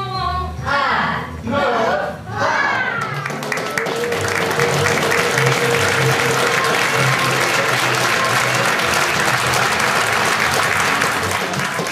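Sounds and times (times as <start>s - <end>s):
music playing: 2.4s - 11.9s
audience applauding: 3.0s - 11.9s.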